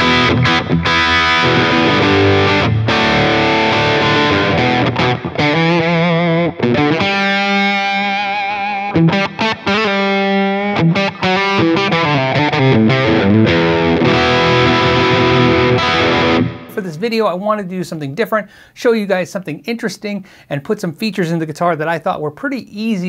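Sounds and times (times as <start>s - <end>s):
held guitar notes with vibrato: 0.0s - 16.7s
overdriven electric guitar chords: 0.0s - 16.7s.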